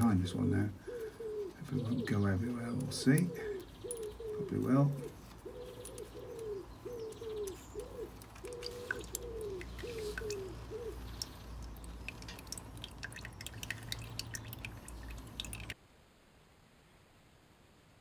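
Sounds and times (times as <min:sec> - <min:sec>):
pigeon cooing: 0:00.8 - 0:11.4
oil dripping into plastic bowl: 0:07.0 - 0:15.8.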